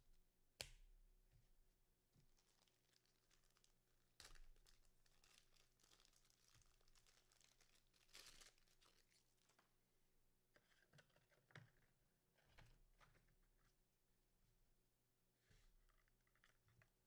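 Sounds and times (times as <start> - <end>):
foil wrappers crinkling and tearing: 2.3 - 9.7.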